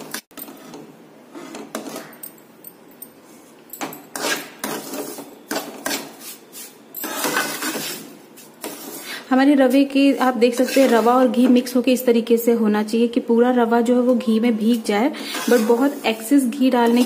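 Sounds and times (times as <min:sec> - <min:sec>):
ladle scraping metal pan: 0:07.0 - 0:09.1, 0:10.4 - 0:11.4, 0:15.2 - 0:17.0.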